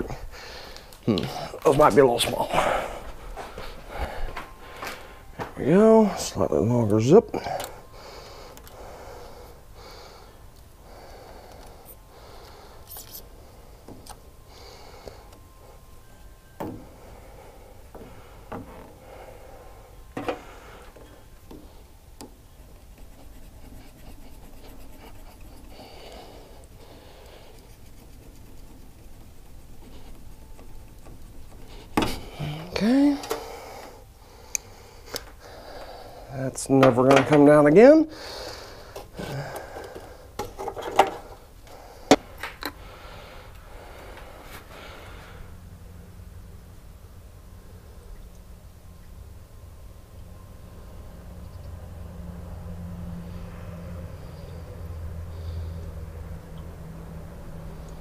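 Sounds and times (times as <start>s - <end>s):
knocks and handling noises: 20.1s - 22.4s, 28.9s - 32.4s, 38.9s - 41.4s.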